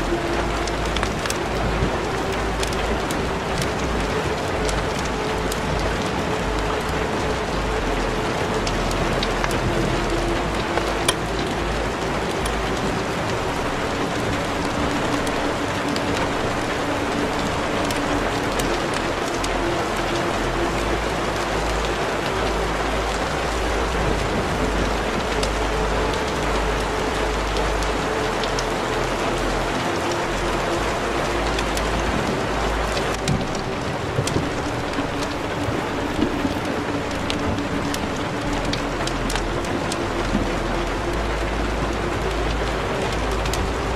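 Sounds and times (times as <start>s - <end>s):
rain-like hiss: 0.0s - 43.9s
soft crackles: 31.6s - 40.4s.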